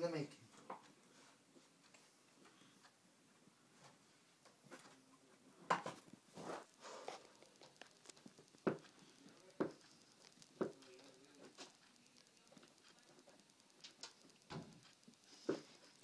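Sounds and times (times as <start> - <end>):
basketball bouncing on carpet: 8.6 - 8.8.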